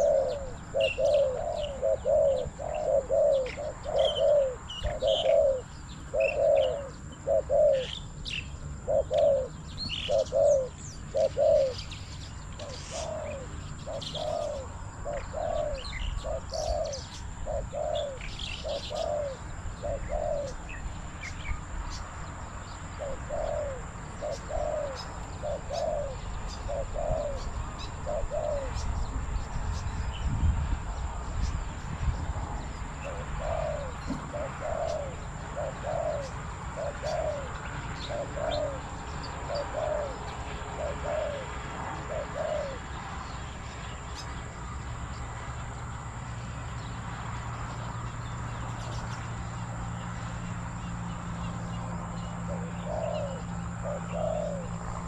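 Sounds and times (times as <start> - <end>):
doves cooing: 0.0 - 21.9, 22.5 - 29.0, 32.8 - 43.2, 50.9 - 55.0
small birds chirping: 0.0 - 55.0.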